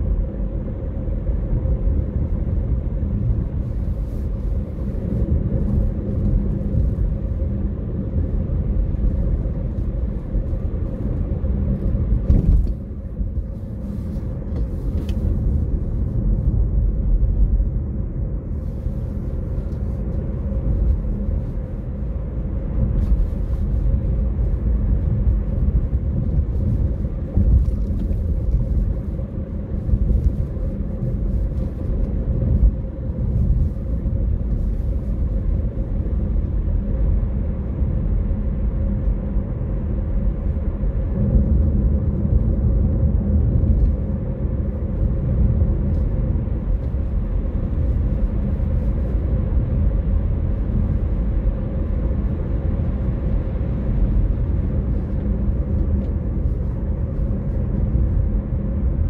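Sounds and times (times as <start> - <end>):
car driving road rumble: 0.0 - 59.0.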